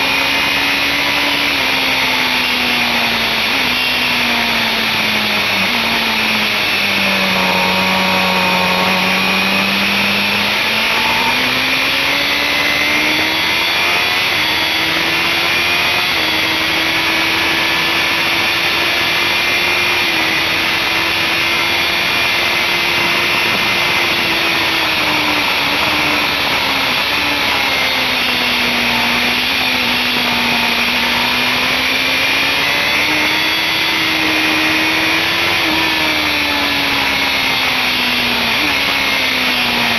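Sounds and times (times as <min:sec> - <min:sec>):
motorcycle engine revving high: 0:00.0 - 0:39.9
wind rush on microphone: 0:22.5 - 0:27.8.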